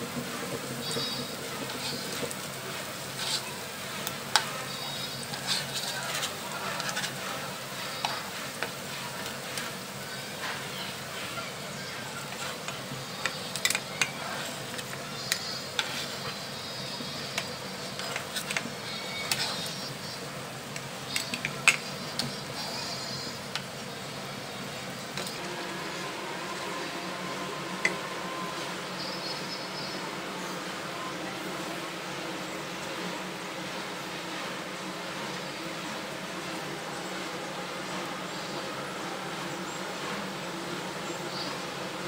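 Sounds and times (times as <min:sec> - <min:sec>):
food sizzling in oil: 0:00.0 - 0:30.0
plastic spatula scraping pan: 0:00.8 - 0:09.8, 0:12.2 - 0:20.1.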